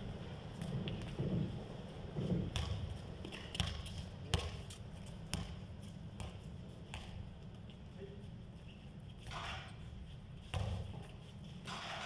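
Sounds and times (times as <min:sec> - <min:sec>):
basketball bouncing on concrete: 0:02.3 - 0:07.4, 0:10.5 - 0:11.1.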